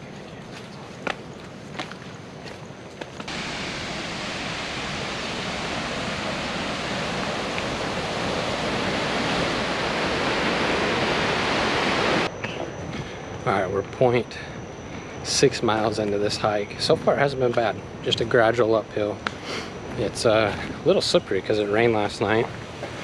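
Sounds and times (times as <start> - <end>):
faint footsteps on trail: 0.0 - 3.4, 19.2 - 21.8, 22.4 - 23.0
waterfall roaring: 3.3 - 12.3.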